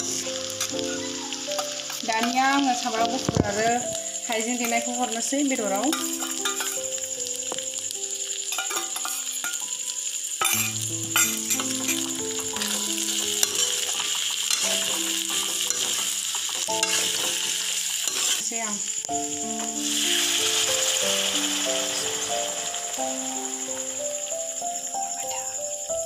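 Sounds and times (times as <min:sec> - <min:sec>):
food sizzling in a wok: 0:00.0 - 0:26.0
spoon stirring against pan: 0:00.6 - 0:03.8, 0:05.8 - 0:07.0, 0:08.5 - 0:09.8, 0:10.4 - 0:18.5
water poured into hot wok: 0:08.5 - 0:24.7.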